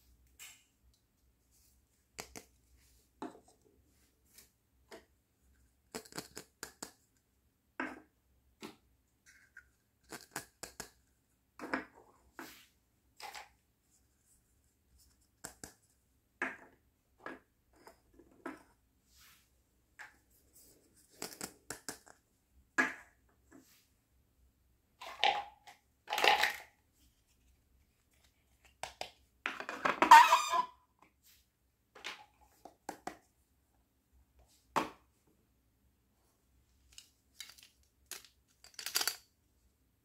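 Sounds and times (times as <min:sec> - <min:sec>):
plastic toys clicking and tapping: 0:02.2 - 0:02.6, 0:05.9 - 0:07.1, 0:09.3 - 0:11.0, 0:21.1 - 0:22.2, 0:36.9 - 0:39.3.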